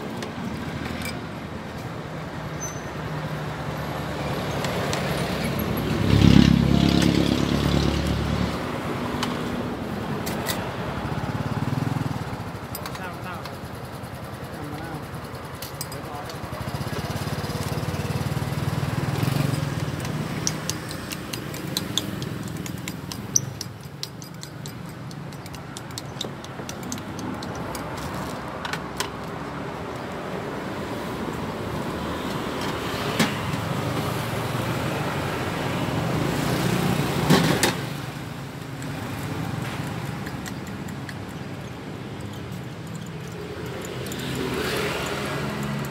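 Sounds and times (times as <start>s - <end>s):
vehicle engine rumble: 3.4s - 45.9s
utensils clinking on glass and steel: 15.6s - 16.4s, 19.3s - 28.1s, 39.8s - 45.9s.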